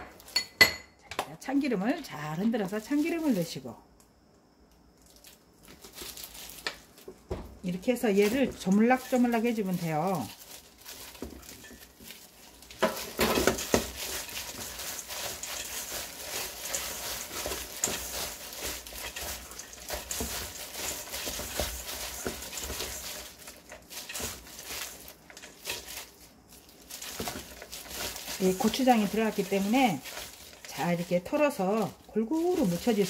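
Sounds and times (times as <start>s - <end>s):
gloved hand mixing shredded squid: 7.9s - 33.0s.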